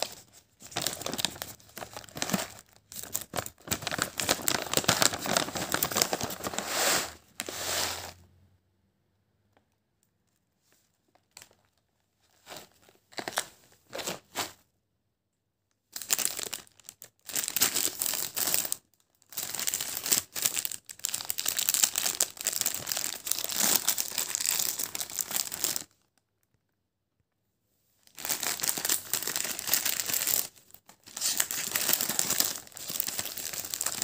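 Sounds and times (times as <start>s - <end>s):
plastic packets crinkling: 0.0s - 6.6s, 11.1s - 14.3s, 16.0s - 26.1s, 28.0s - 34.0s.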